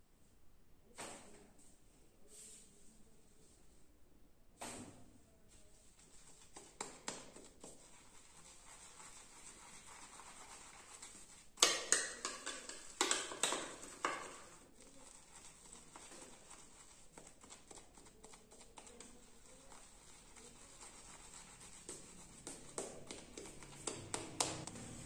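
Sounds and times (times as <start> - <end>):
brush scrubbing in lather bowl: 5.8 - 25.0
shaving brush strokes on skin: 5.8 - 25.0.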